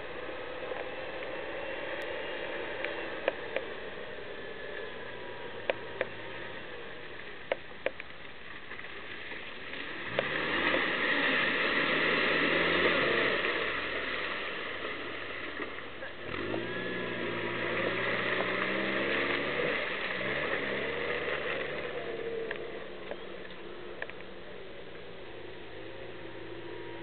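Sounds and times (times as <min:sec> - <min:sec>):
off-road vehicle engine revving: 0:00.0 - 0:07.6, 0:09.7 - 0:27.0
water splashing: 0:00.0 - 0:24.5.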